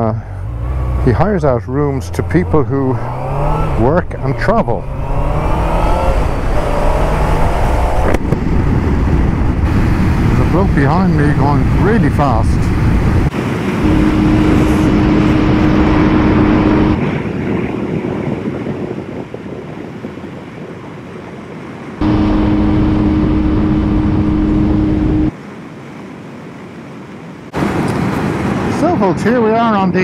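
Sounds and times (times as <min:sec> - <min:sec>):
motorcycle engine cruising: 0:00.0 - 0:17.5, 0:22.0 - 0:25.3
heavy wind rush: 0:00.0 - 0:25.4.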